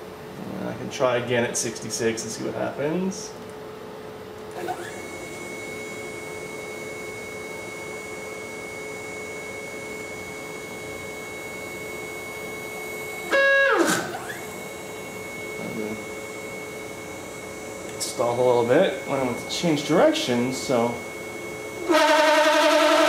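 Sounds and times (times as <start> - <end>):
stepper motor whine: 4.5 - 23.0
motor stalling harsh burst: 13.2 - 14.5, 21.8 - 23.0.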